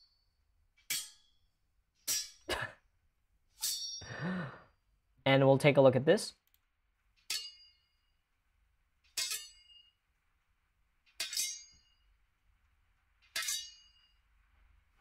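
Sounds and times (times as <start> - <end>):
ringing sword clashes: 0.9 - 1.4, 2.0 - 2.7, 3.6 - 4.1, 7.3 - 8.1, 9.2 - 10.0, 11.2 - 12.0, 13.3 - 14.2.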